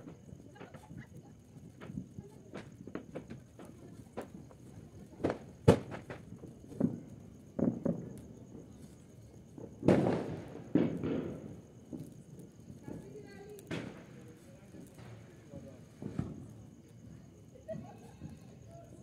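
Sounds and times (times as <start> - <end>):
firecracker bangs: 5.2 - 8.7, 9.7 - 12.1, 12.8 - 16.5.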